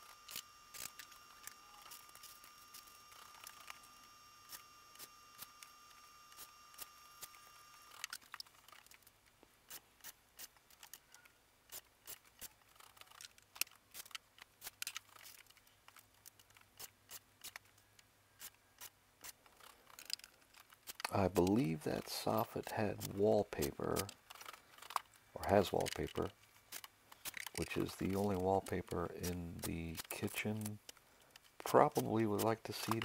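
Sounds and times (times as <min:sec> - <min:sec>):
faint high tone: 0:01.4 - 0:02.2
small metal hardware clicking: 0:25.7 - 0:33.0.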